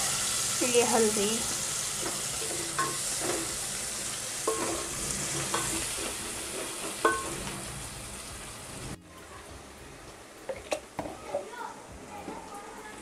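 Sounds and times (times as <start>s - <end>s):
food sizzling in hot oil: 0.0s - 9.0s.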